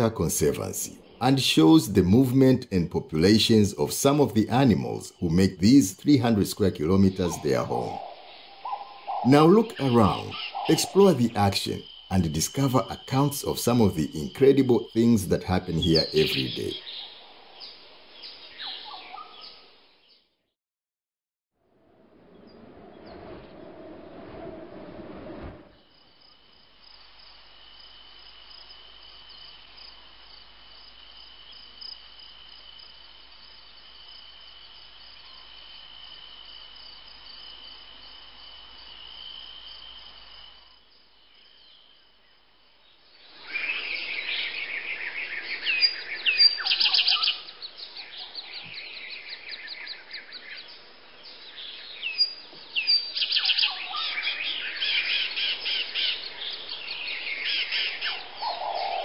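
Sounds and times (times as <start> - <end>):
faint hiss: 0.0 - 8.7
high insect trill: 0.0 - 20.0, 25.7 - 59.0
birds chirping and squawking: 3.2 - 19.7, 43.6 - 48.9, 51.7 - 59.0.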